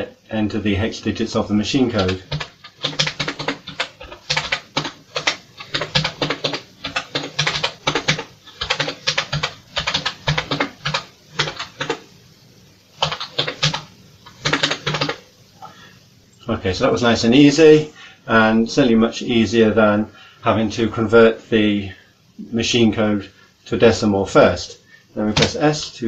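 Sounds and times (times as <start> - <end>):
computer keyboard keys clicking: 2.0 - 12.0, 13.0 - 15.2.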